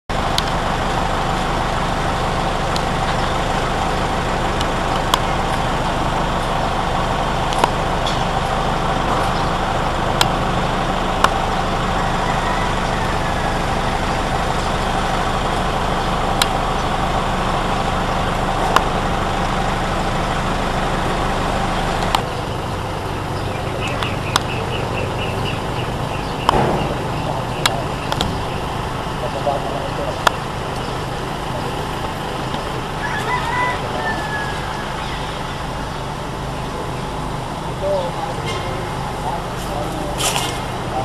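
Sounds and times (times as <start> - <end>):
engine-like drone: 0.0 - 41.0
sharp knocks: 26.4 - 28.8.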